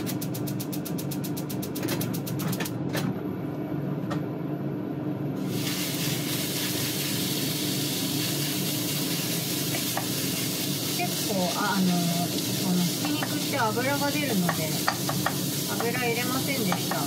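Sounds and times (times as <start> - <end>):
low hum with rapid ticking: 0.0 - 5.4, 6.2 - 17.0
meat sizzling in a frying pan: 5.4 - 17.0.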